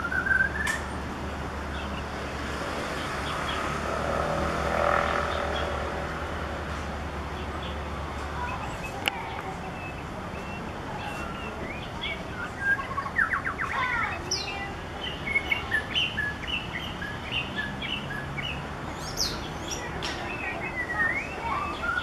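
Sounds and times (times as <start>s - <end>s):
bird singing whistled notes: 0.0s - 0.9s, 9.8s - 22.0s.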